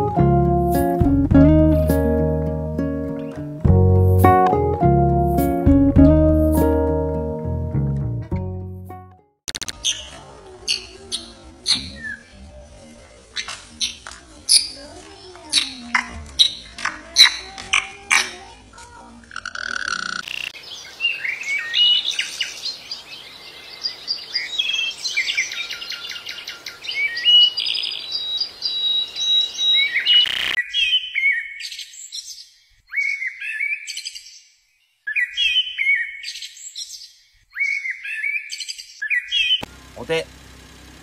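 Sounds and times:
finches chirping and twittering: 0:19.4 - 0:32.4.

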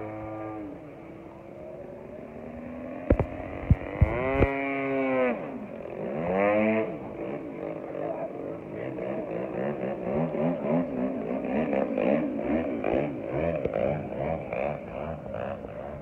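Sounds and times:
model plane engine: 0:00.0 - 0:16.0
sharp engine pops: 0:03.1 - 0:04.6.

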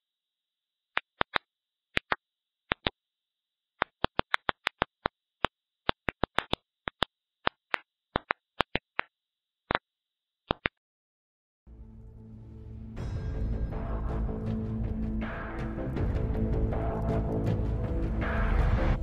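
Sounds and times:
sharp pops: 0:03.8 - 0:09.1.

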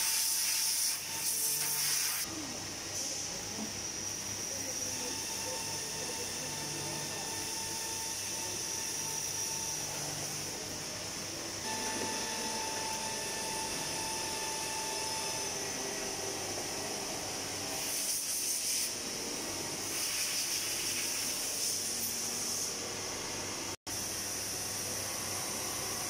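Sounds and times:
machine hiss: 0:00.0 - 0:02.3, 0:11.6 - 0:22.9.

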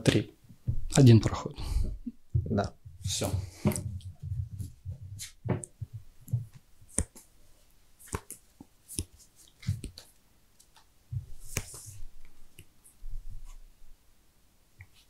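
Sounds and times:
cards clicking and tapping: 0:05.2 - 0:07.3, 0:08.0 - 0:10.8.

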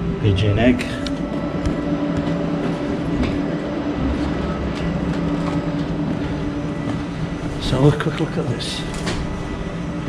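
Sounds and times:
mechanical hum: 0:00.0 - 0:10.0
footsteps on concrete stairs: 0:01.1 - 0:07.6.

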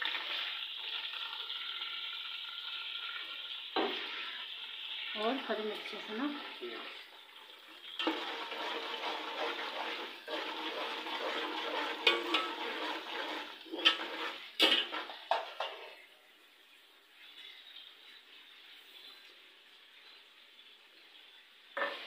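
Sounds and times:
curry sizzling in a pan: 0:00.0 - 0:22.0.

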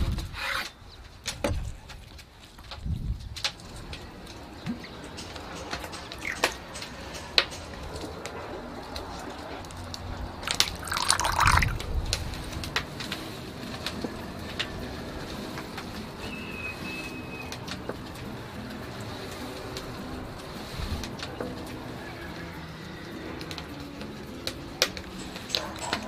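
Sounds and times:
small drips: 0:06.1 - 0:07.0, 0:09.9 - 0:12.3
liquid pouring into ceramic bowl: 0:10.5 - 0:11.8.

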